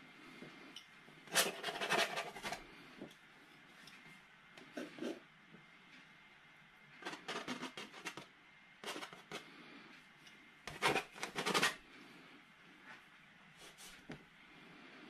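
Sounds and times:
palette knife scraping on canvas: 0:01.3 - 0:02.6, 0:10.7 - 0:11.8.

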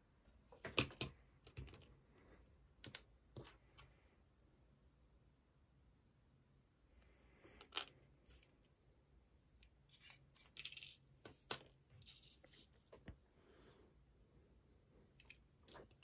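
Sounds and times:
small plastic parts clicking: 0:09.6 - 0:12.2.

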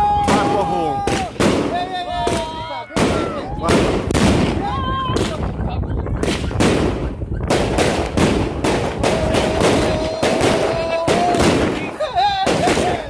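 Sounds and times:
fireworks bangs: 0:00.0 - 0:13.0.

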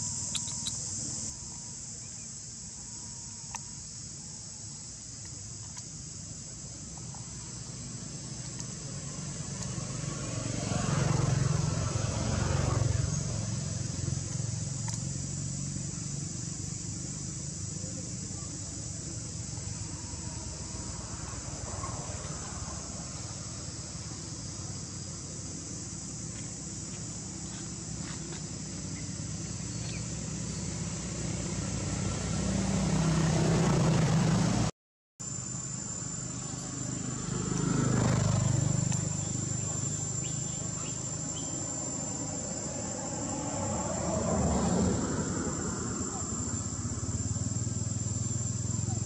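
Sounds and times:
high insect chorus: 0:00.0 - 0:49.0
vehicle engine running: 0:06.9 - 0:34.7, 0:35.5 - 0:49.0.

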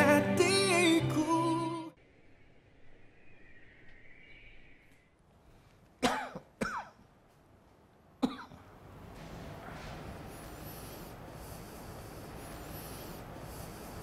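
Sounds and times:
person coughing: 0:06.0 - 0:07.0, 0:08.2 - 0:08.6.

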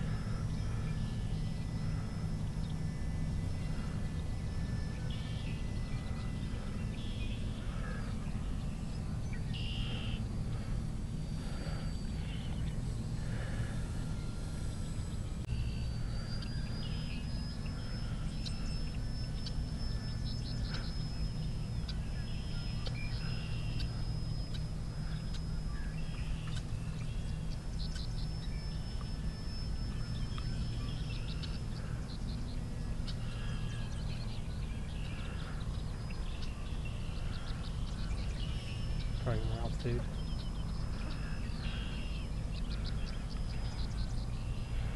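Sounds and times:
birds chirping: 0:00.0 - 0:44.9
steady low rumble: 0:00.0 - 0:44.9
thin high whine: 0:00.0 - 0:44.9.

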